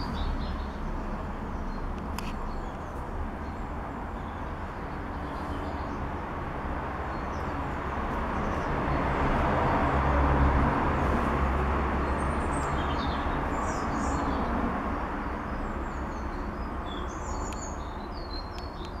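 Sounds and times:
small birds chirping: 0:00.0 - 0:06.3, 0:12.0 - 0:19.0.

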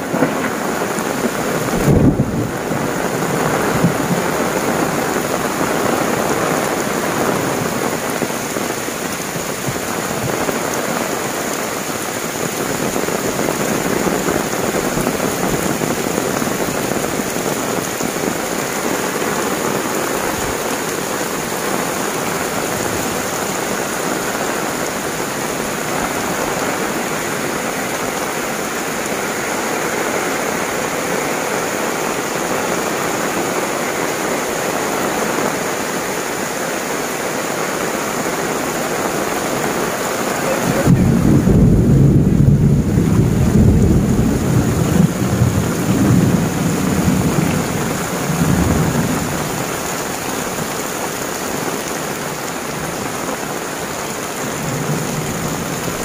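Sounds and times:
thunder rumbling: 0:00.0 - 0:08.2, 0:40.3 - 0:49.7
heavy rain on roofs: 0:00.0 - 0:56.0.

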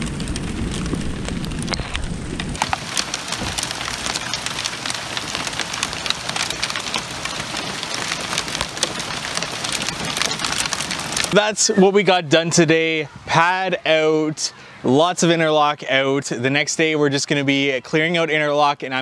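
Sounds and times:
hailstones pattering on hard surfaces: 0:00.0 - 0:11.5.

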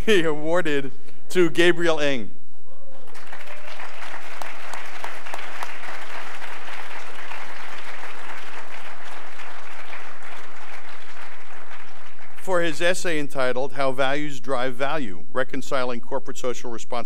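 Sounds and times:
audience applauding: 0:03.0 - 0:12.9.

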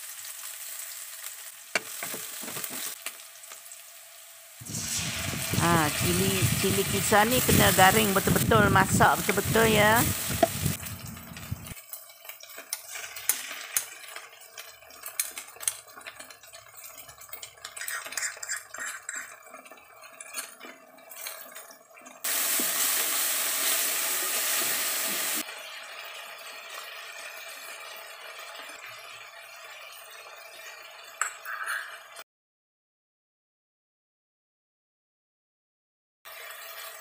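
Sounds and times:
loud steady sizzle: 0:00.0 - 0:31.3, 0:36.3 - 0:37.0
onions sizzling in oil: 0:00.0 - 0:32.1, 0:36.3 - 0:37.0
wooden spatula scraping wok: 0:01.8 - 0:03.0, 0:06.4 - 0:11.8.

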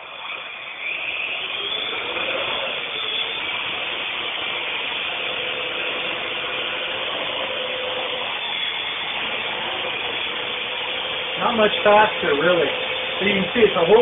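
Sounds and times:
quadcopter whirring buzz: 0:00.0 - 0:14.0.

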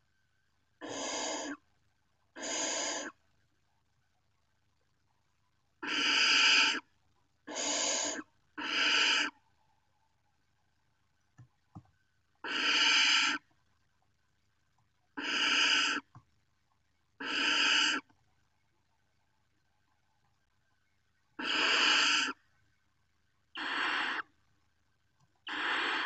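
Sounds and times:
owl nestlings hissing calls: 0:00.8 - 0:01.6, 0:02.4 - 0:03.2, 0:05.8 - 0:06.8, 0:07.5 - 0:09.4, 0:12.4 - 0:13.4, 0:15.2 - 0:16.1, 0:17.2 - 0:18.1, 0:21.4 - 0:22.4, 0:23.5 - 0:24.3, 0:25.4 - 0:26.0.

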